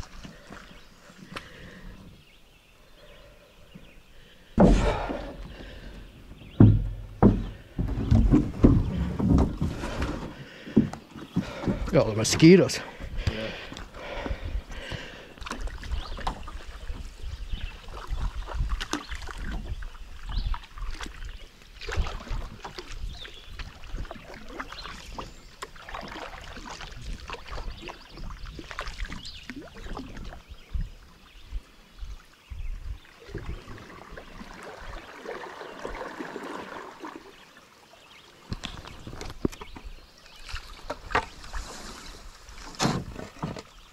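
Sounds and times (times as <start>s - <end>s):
paddle splashes and drips: 0.0s - 2.3s, 3.8s - 43.9s
knocks on canoe hull: 4.6s - 5.3s, 6.5s - 11.9s
dull low thumps: 4.6s - 12.2s.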